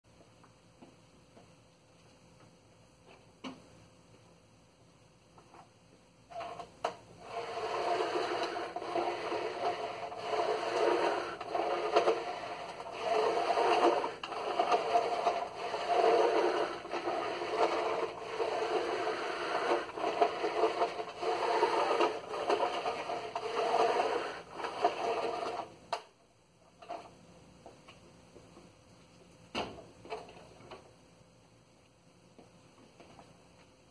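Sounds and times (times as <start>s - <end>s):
carpet sweeper whirring: 6.3s - 26.1s.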